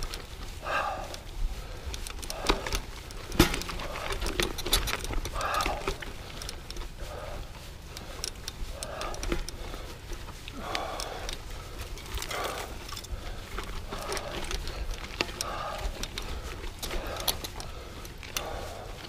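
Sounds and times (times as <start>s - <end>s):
bike tyres rattling over stones: 0.0s - 19.0s
person breathing hard: 0.0s - 19.0s.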